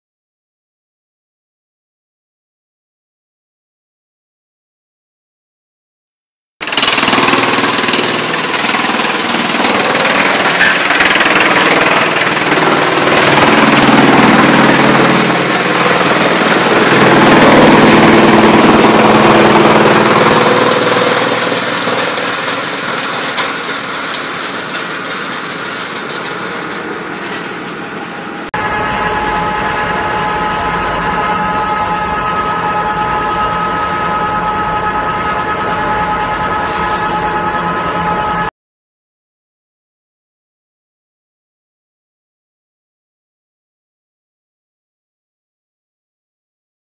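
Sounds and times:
wood crusher grinding: 6.6s - 28.5s.

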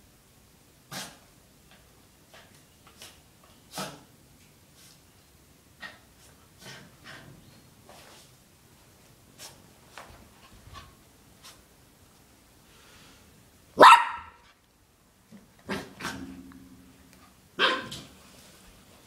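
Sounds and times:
puppy barking: 13.8s - 14.4s, 17.6s - 18.1s.

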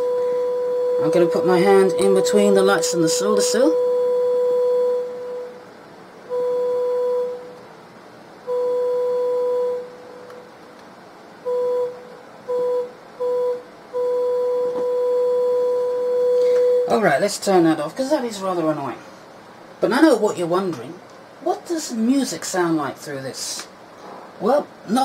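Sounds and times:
test tone through amplifier: 0.0s - 7.7s, 8.3s - 10.6s, 11.4s - 17.0s.

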